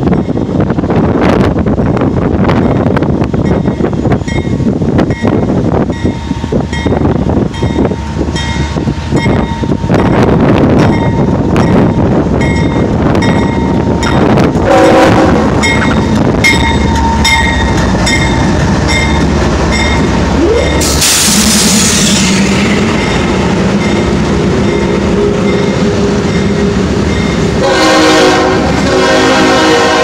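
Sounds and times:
diesel locomotive rumble: 0:00.0 - 0:30.0
locomotive bell ringing: 0:03.4 - 0:28.5
train horn blast: 0:14.6 - 0:16.0, 0:21.2 - 0:30.0.

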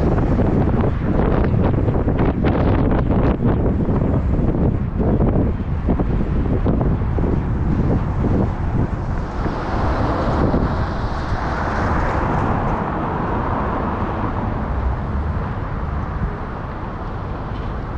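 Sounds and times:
low traffic rumble: 0:00.0 - 0:17.9
vehicle passing close by: 0:06.4 - 0:16.4.

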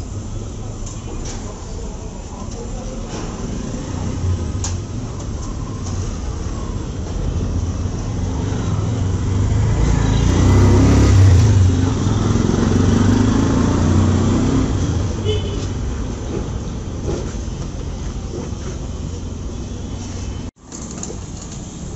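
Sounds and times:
vehicle engine rumbling past: 0:07.6 - 0:15.2.

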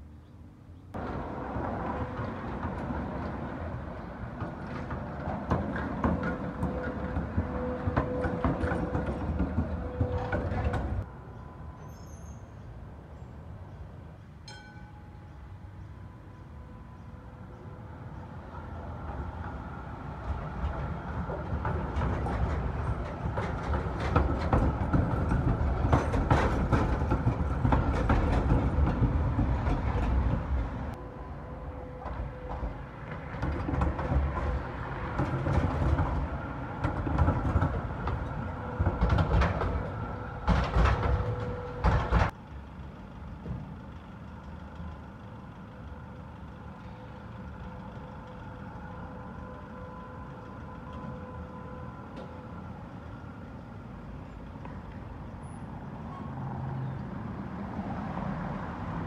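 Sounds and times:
street hum: 0:00.0 - 0:59.0
trams rumbling past: 0:00.9 - 0:59.0
wheels clacking over rails: 0:01.0 - 0:11.1, 0:18.5 - 0:31.0, 0:31.8 - 0:42.5.

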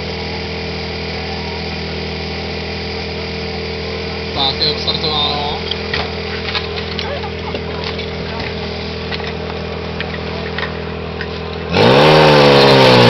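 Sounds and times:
pump engine idling: 0:00.0 - 0:13.0
hose couplings clanking: 0:05.6 - 0:11.6.

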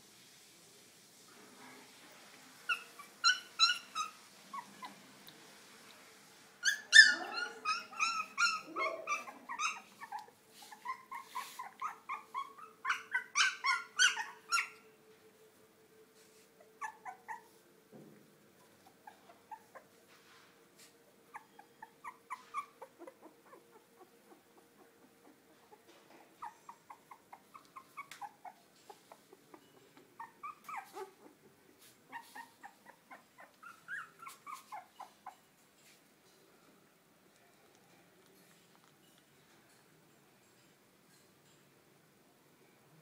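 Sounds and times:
puppies whimpering: 0:02.7 - 0:05.0, 0:06.6 - 0:14.8, 0:21.3 - 0:25.8, 0:26.4 - 0:31.5, 0:32.1 - 0:35.4.

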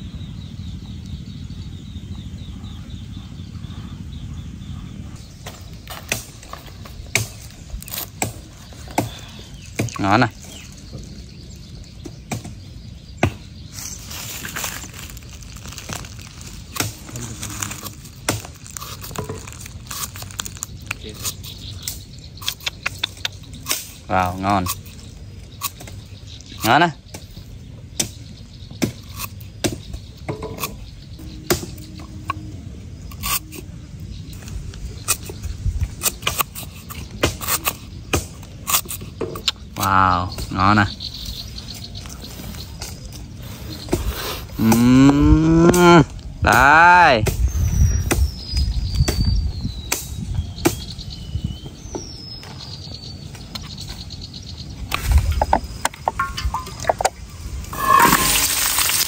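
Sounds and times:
oil glugging from bottle: 0:56.0 - 0:59.0.

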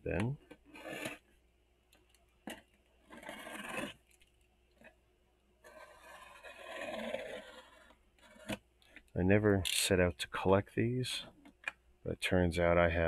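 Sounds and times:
knife scraping through cardboard: 0:00.7 - 0:01.2, 0:03.1 - 0:04.0, 0:05.6 - 0:08.6.

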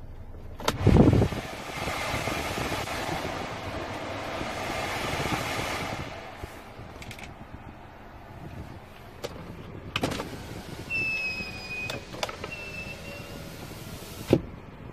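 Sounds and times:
side-mirror motor whining: 0:10.0 - 0:14.4.

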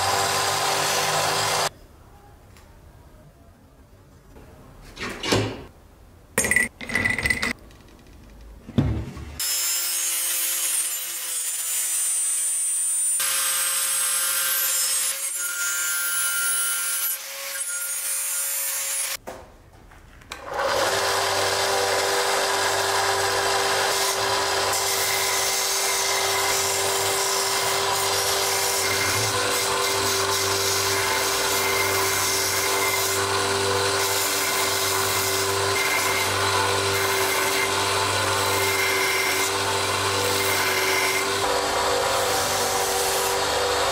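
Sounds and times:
angle grinder on wood: 0:00.0 - 0:01.7, 0:20.4 - 0:43.9
band saw cutting wood: 0:00.0 - 0:01.7, 0:20.4 - 0:43.9.

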